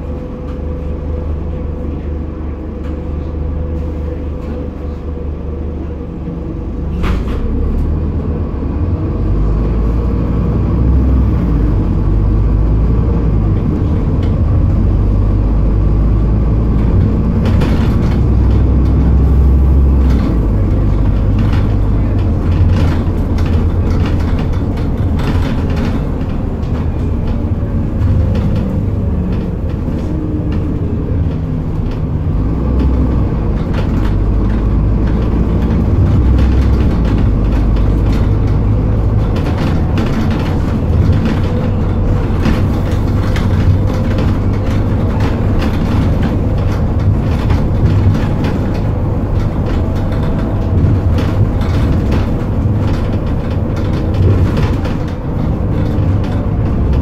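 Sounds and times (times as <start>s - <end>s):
bus diesel engine running: 0.0s - 57.0s
road noise: 0.0s - 57.0s
body rattles and knocks: 9.1s - 57.0s.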